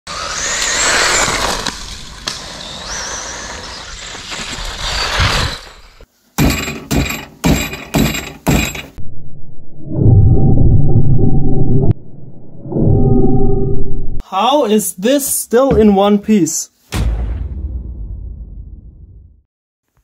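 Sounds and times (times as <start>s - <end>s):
electric motor whining: 0.1s - 5.5s.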